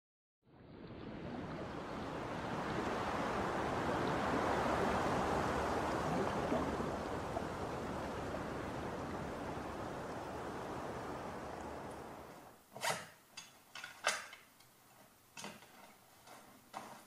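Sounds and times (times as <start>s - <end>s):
water rushing: 0.6s - 13.3s.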